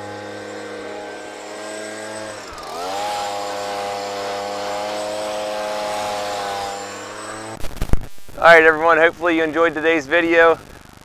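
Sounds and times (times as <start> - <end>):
leaf blower running: 0.0 - 7.6.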